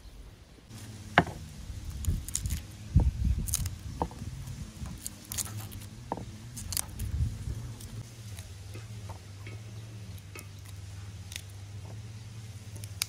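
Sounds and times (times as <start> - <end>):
dry garlic skins crackling: 0.7 - 13.0
cloves snapping off: 1.9 - 2.7, 3.4 - 4.2, 4.9 - 5.9, 6.5 - 7.1, 10.2 - 11.6, 12.7 - 13.0.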